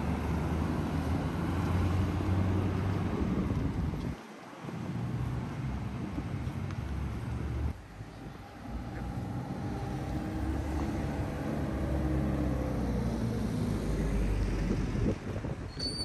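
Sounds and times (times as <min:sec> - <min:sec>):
vehicle engine passing by: 0:00.0 - 0:03.4, 0:06.9 - 0:15.4.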